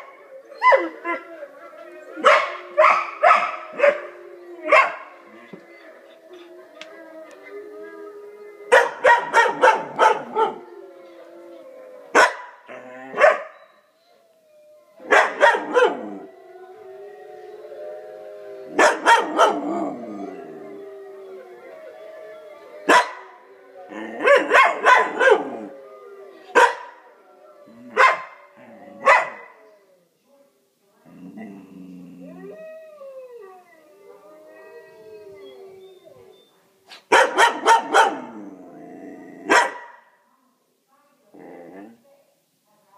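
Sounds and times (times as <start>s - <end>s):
wolves howling: 0.0s - 30.1s, 31.1s - 36.6s, 37.3s - 39.6s
dog barking: 2.2s - 4.0s, 8.7s - 10.5s, 12.2s - 12.5s, 13.2s - 13.5s, 15.1s - 16.0s, 18.8s - 19.6s, 22.9s - 23.2s, 24.2s - 25.5s, 26.6s - 26.9s, 28.0s - 28.4s, 29.0s - 29.5s, 36.9s - 38.3s, 39.5s - 40.0s.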